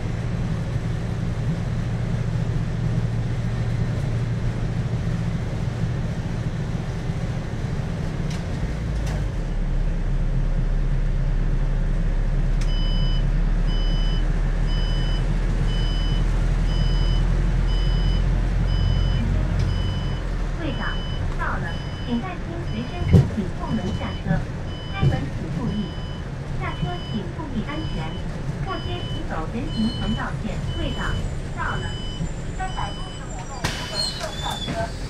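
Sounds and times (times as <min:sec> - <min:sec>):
bus running and road noise: 0:00.0 - 0:35.0
high electronic beep: 0:17.8 - 0:22.1.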